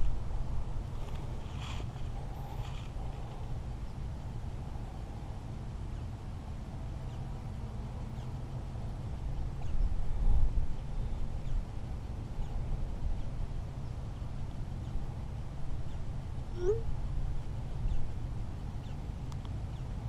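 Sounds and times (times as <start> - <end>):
wind buffeting microphone: 9.2 - 18.6.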